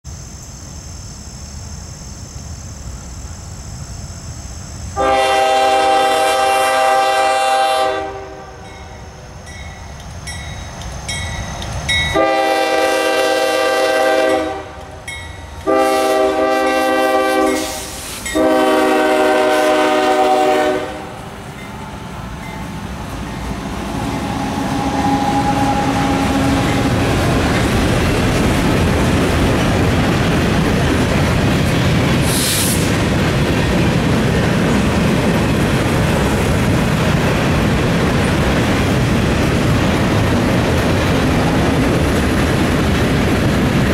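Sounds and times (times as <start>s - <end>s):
passing train rumble: 0.1s - 43.9s
train air horn blasts: 5.0s - 8.8s, 12.1s - 15.0s, 15.6s - 21.2s, 23.9s - 27.2s.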